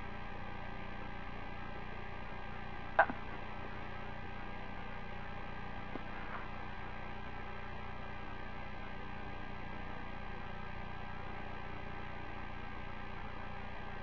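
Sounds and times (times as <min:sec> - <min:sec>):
radio channel hum and hiss: 0:00.0 - 0:14.0
faint ticks: 0:03.0 - 0:03.2.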